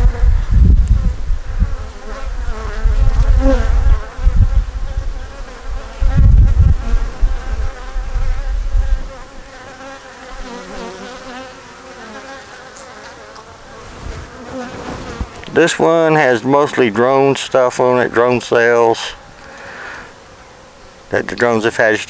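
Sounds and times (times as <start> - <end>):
low rumble on microphone: 0.0 - 9.1
bees humming: 1.4 - 21.6.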